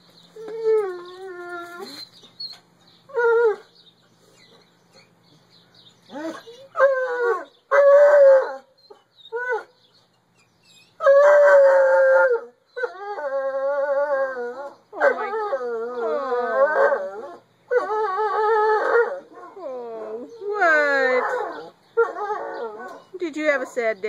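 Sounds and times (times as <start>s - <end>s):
dog howling and baying: 11.0s - 23.1s.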